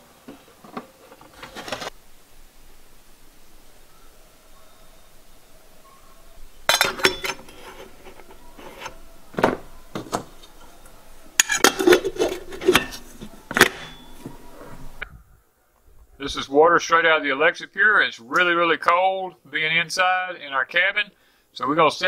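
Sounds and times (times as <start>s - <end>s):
metal parts clinking and clattering: 6.7s - 9.0s.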